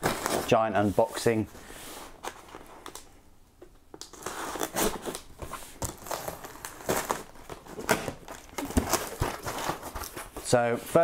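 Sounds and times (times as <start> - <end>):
cardboard crackling and tearing: 4.0 - 10.5
knife slitting packing tape: 4.1 - 7.3.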